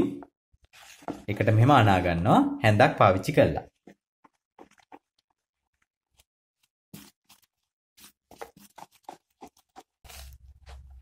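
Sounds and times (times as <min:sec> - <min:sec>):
plastic spoon scraping a bowl: 0:04.2 - 0:06.3, 0:07.0 - 0:11.0.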